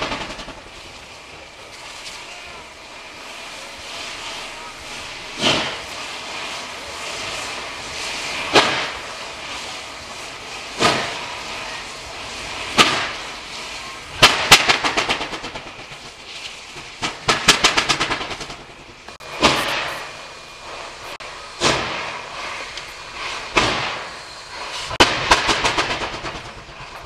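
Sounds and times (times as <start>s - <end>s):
steam locomotive exhaust beats: 0.0s - 27.0s.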